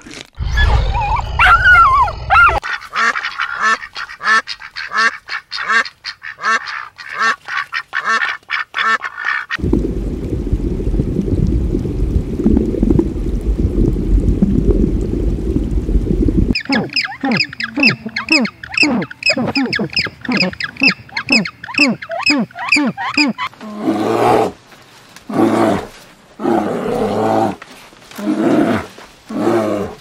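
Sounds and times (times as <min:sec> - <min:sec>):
ducks quacking: 0:02.5 - 0:09.6, 0:16.6 - 0:23.5
low rumble: 0:09.6 - 0:16.6
penguins honking: 0:16.6 - 0:23.5.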